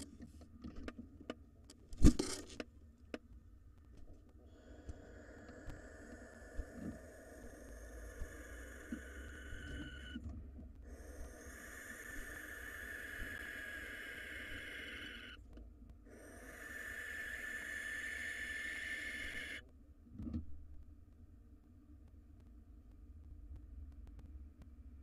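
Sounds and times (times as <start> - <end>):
owl hissing screeches: 4.5 - 10.2, 10.9 - 15.4, 16.1 - 19.6.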